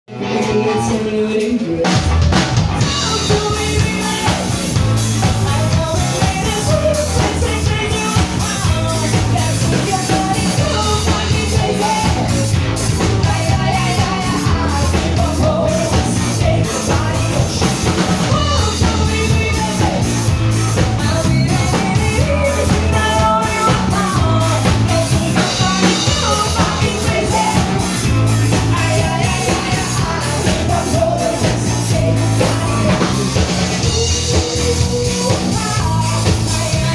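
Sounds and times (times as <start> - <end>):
bass line: 0.1 - 36.9
drum kit beat: 0.1 - 36.9
person singing: 0.1 - 36.9.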